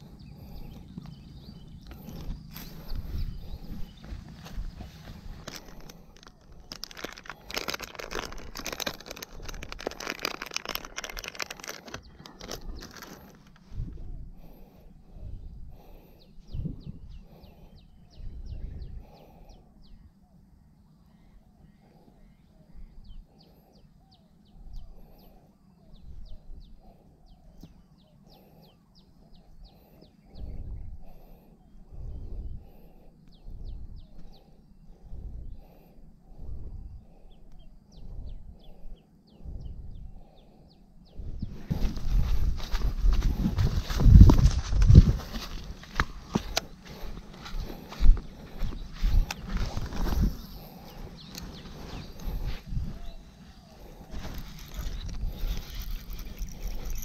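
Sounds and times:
low rumbles on microphone: 0.0s - 5.9s, 36.3s - 40.3s, 41.0s - 57.0s
plastic packet crinkling: 5.3s - 13.6s, 54.2s - 57.0s.

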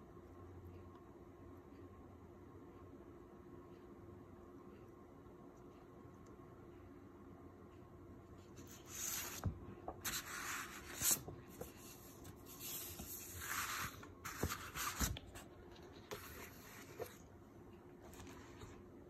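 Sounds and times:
paper rustling and sliding: 8.6s - 17.2s.

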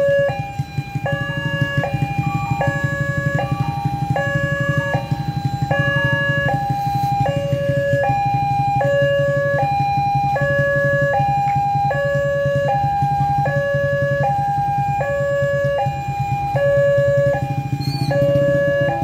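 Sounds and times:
two-tone warning chime: 0.0s - 19.0s.

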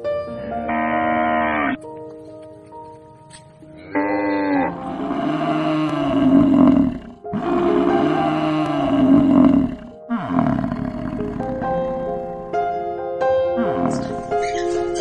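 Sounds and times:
short moo: 3.9s - 12.0s
yak low rough grunting calls: 13.6s - 14.7s.

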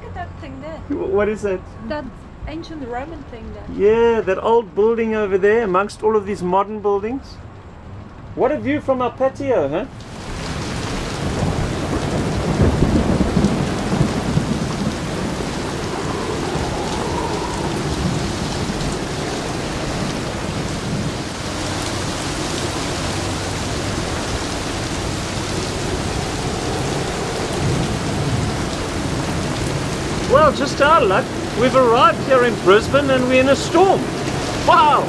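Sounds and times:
steady rain: 9.9s - 35.0s
low rumble of thunder: 10.2s - 34.8s.

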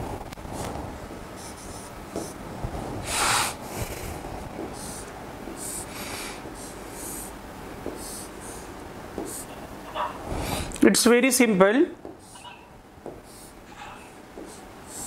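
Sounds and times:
stylus scratching on screen: 1.4s - 2.4s, 8.0s - 10.2s
person sniffing: 3.0s - 4.2s, 4.8s - 9.6s, 13.2s - 15.0s.

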